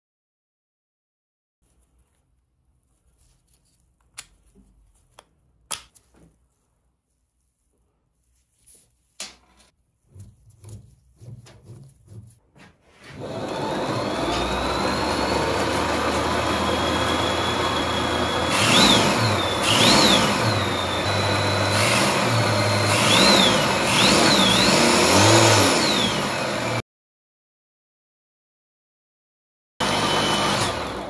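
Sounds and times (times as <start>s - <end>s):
electric motor whine: 13.2s - 26.8s, 29.8s - 31.0s.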